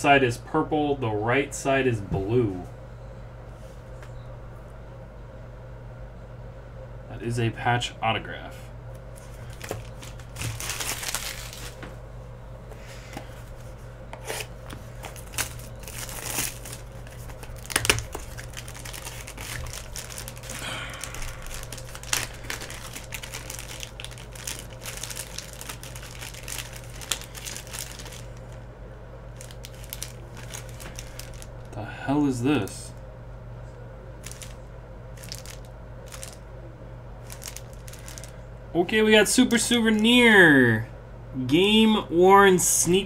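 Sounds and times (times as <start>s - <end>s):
plastic wrapper crinkling and tearing: 9.2s - 11.8s, 14.2s - 28.6s, 29.4s - 31.7s, 34.2s - 34.6s, 35.2s - 36.4s, 37.2s - 38.4s.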